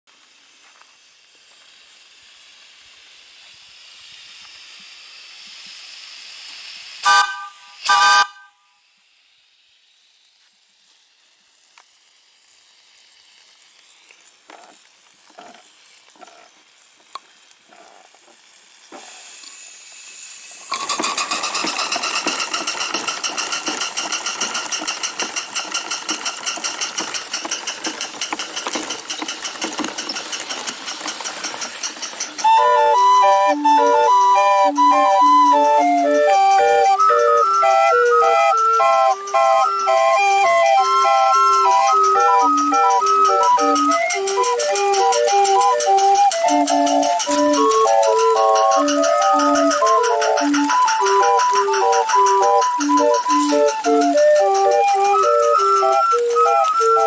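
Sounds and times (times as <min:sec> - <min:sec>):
soft steam puffs: 0:00.1 - 0:57.0
steam hissing: 0:00.1 - 0:57.0
steam engine exhaust chuffing: 0:00.2 - 0:57.0
steam whistle toots: 0:07.0 - 0:08.8, 0:32.4 - 0:57.0.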